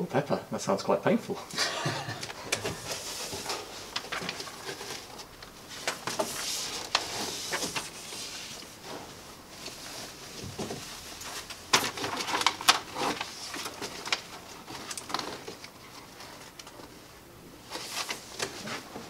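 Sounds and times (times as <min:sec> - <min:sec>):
plastic wrapping crinkling: 0:02.4 - 0:17.0.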